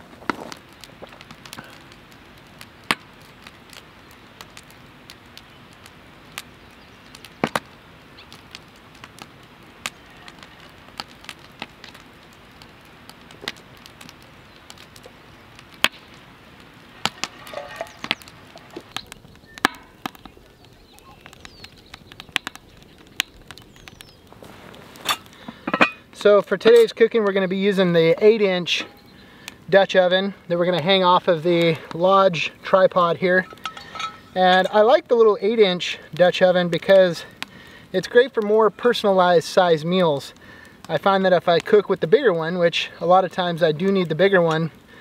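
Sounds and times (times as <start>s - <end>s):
sharp pops of fire: 0.0s - 27.3s, 35.9s - 38.9s
wood fire crackling: 0.0s - 45.0s.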